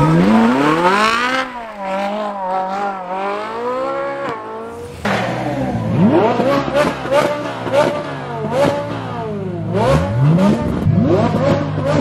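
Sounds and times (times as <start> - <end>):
second car engine revving: 0.0 - 12.0
sports car engine at high revs: 0.0 - 12.0.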